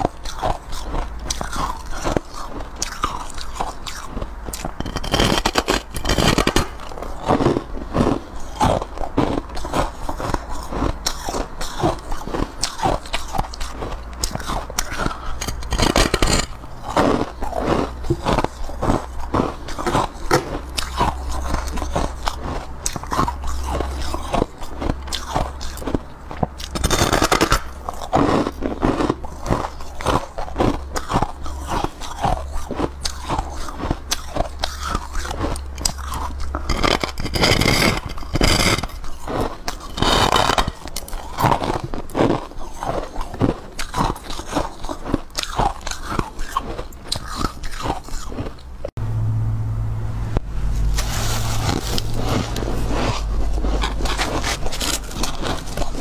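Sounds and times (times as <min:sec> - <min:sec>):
person chewing crunchy ice: 0:00.0 - 0:49.0, 0:50.8 - 0:56.0.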